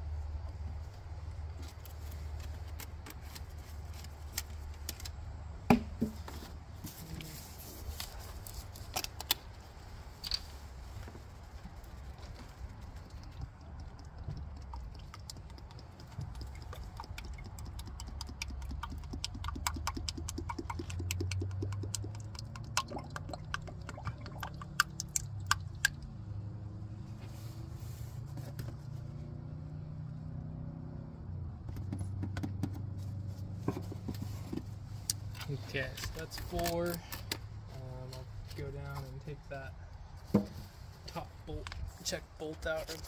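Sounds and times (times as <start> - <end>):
liquid glugging from plastic bottle: 13.3 - 25.9.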